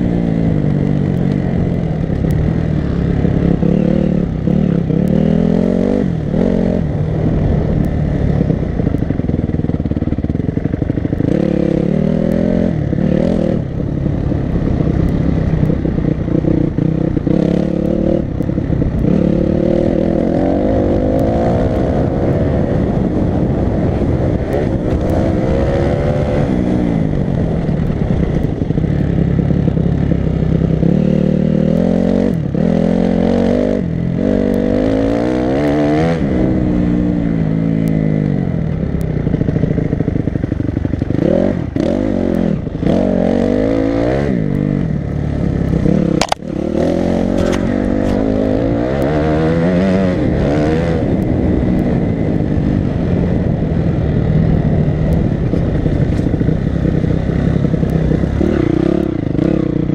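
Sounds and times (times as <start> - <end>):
dirt bike engine revving: 1.6 - 6.9, 15.2 - 23.0, 40.8 - 52.0, 55.6 - 59.9.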